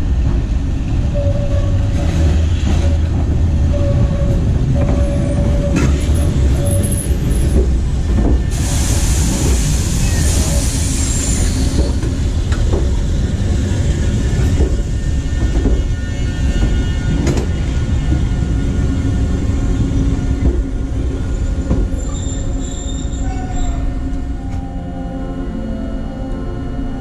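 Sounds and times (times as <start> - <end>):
electric train rumbling past: 0.0 - 27.0
high wheel squeal: 9.7 - 12.2, 21.3 - 24.1.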